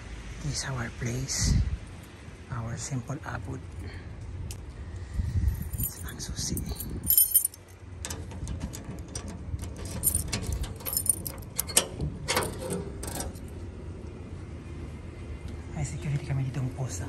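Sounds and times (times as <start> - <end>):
keys jingling: 5.5 - 13.5
key turning in door lock: 6.6 - 13.5.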